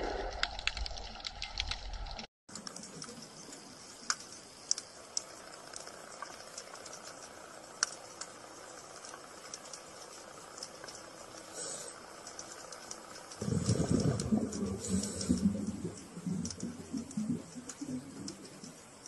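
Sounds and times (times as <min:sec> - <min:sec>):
sharp underwater clicks: 0:00.2 - 0:19.0
underwater hiss: 0:11.5 - 0:12.1, 0:13.4 - 0:16.4
low rumble: 0:13.4 - 0:18.4.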